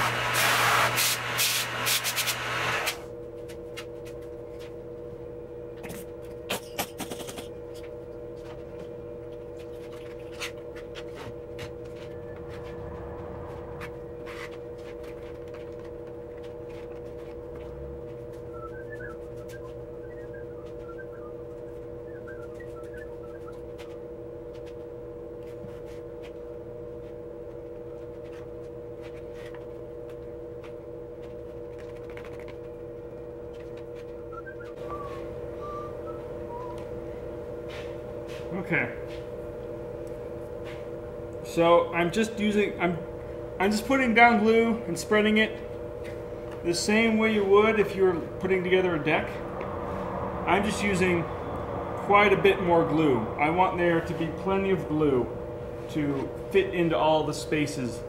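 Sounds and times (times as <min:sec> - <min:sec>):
workshop drone hum: 0:00.0 - 0:58.0
loud rushing noise: 0:49.4 - 0:54.6.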